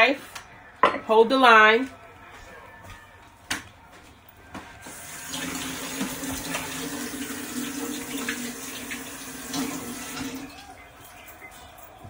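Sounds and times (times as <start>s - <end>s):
tap running into sink: 5.3s - 10.4s.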